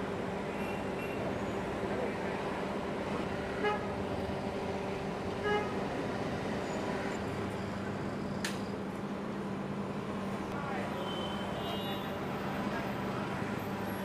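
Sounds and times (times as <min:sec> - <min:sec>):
busy street traffic: 0:00.0 - 0:14.0
short vehicle horn toot: 0:11.0 - 0:12.1.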